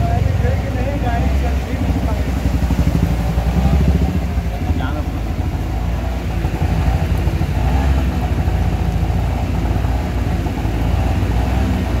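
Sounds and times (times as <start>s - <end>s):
engine low rumble: 0.0s - 12.0s.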